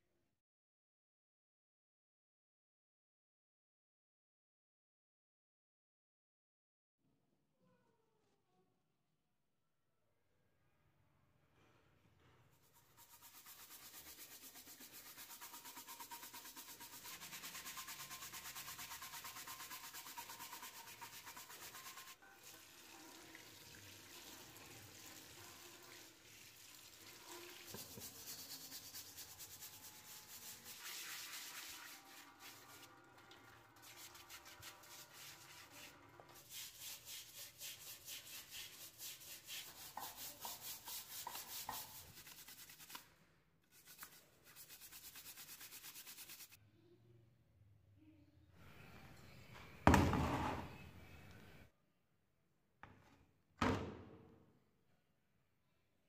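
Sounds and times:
bristle brush scrubbing metal: 12.5 - 22.6, 26.6 - 32.9, 33.7 - 43.1, 43.7 - 46.6.

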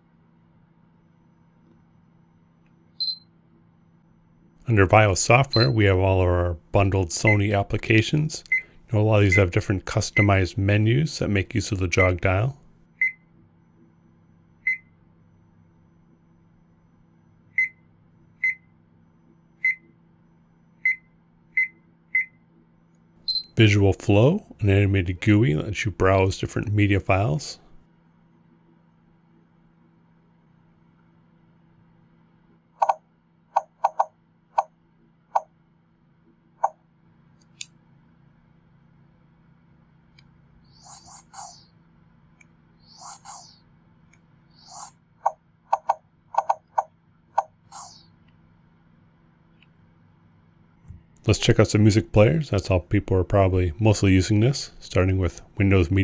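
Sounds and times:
faint steady hum: 0.0 - 56.0
high-pitched electronic beeps: 3.0 - 3.3, 5.4 - 5.8, 23.3 - 23.6, 44.6 - 48.2.

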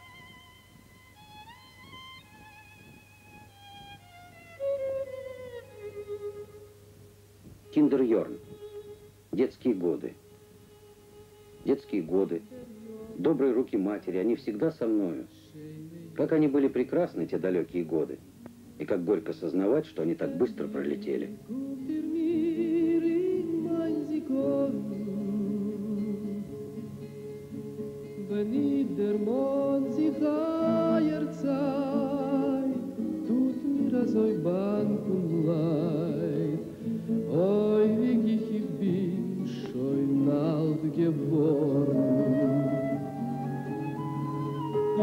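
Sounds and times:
man singing with vibrato: 11.6 - 27.2, 28.1 - 43.6
sustained instrumental accompaniment: 39.6 - 45.0.

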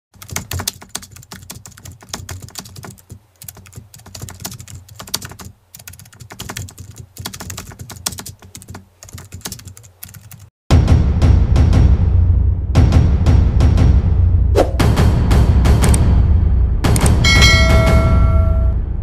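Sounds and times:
keyboard typing: 0.2 - 10.5.

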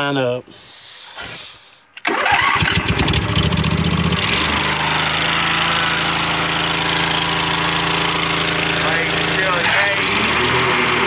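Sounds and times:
lawn mower engine running: 2.0 - 11.0.

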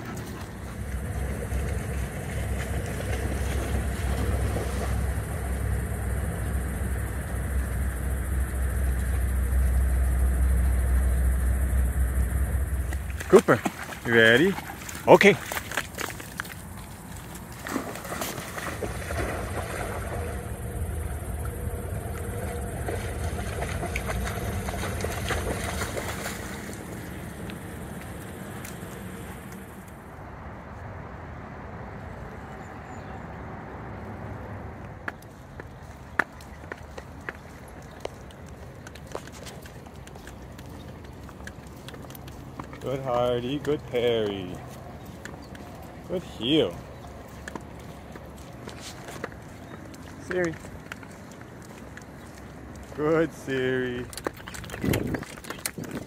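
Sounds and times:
water sloshing and splashing: 0.0 - 10.6, 11.7 - 29.9, 54.0 - 56.0
steady low rumble: 0.0 - 32.6
wind rumble on microphone: 53.6 - 56.0.

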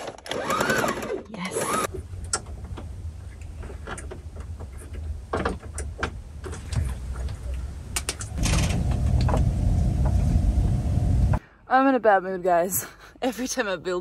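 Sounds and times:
sewing machine running: 0.0 - 1.9.

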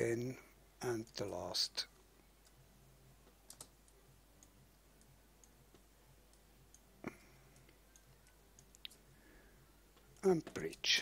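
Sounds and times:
computer mouse clicks: 3.4 - 4.5.

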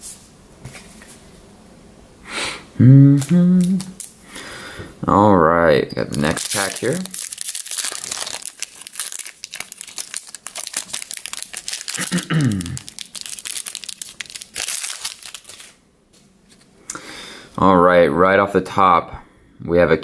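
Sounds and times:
foil wrapper crinkling: 3.2 - 4.2, 6.1 - 15.8
foil wrapper tearing: 3.2 - 4.2, 6.1 - 15.8.

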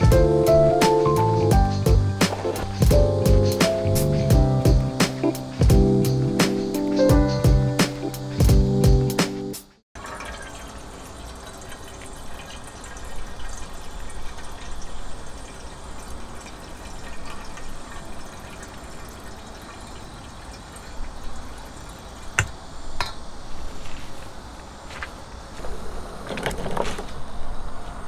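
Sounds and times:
water flowing: 10.0 - 22.9.

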